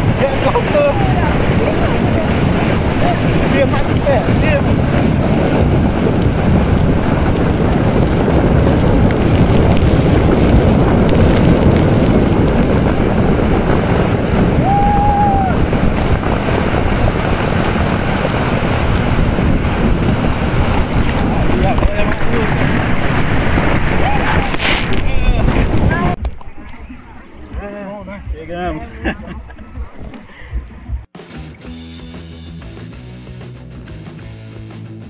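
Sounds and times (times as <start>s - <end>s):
water rushing: 0.0s - 28.5s
wind buffeting microphone: 0.0s - 31.2s.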